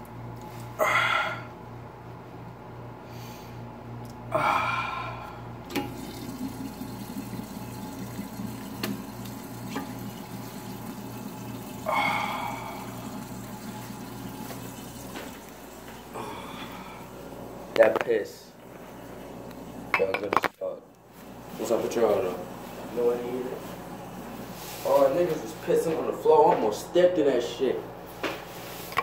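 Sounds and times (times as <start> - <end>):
low steady hum: 0.0 - 28.1
water running: 5.7 - 17.9, 18.7 - 20.3, 21.4 - 25.8.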